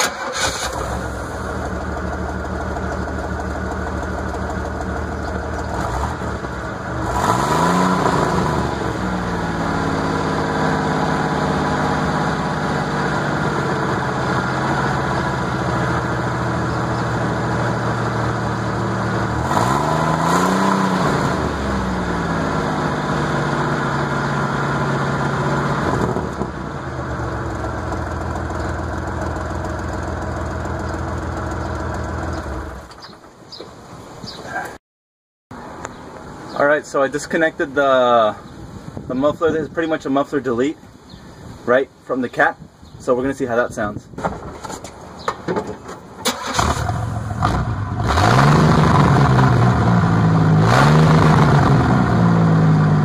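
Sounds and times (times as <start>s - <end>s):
engine revving: 0.0s - 32.8s, 46.3s - 53.0s
car engine starting and idling: 0.0s - 33.0s, 46.1s - 53.0s.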